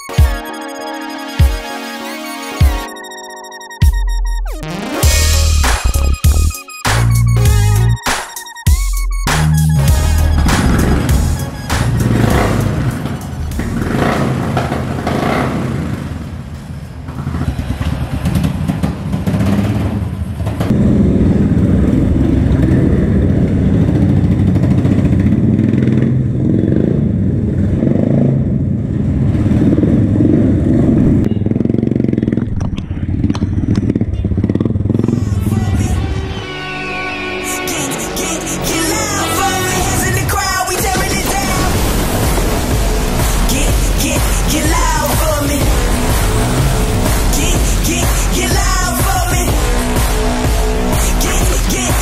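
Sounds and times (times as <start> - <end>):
motorcycle engine revving: 9.8 - 36.5, 37.8 - 52.0
other motorcycles: 10.0 - 36.5, 38.2 - 52.0.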